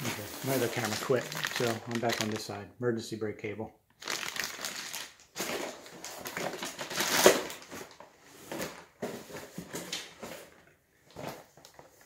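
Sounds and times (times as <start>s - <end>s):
cardboard rustling: 0.0s - 2.5s
plastic packaging crinkling: 0.0s - 2.6s, 4.0s - 8.8s.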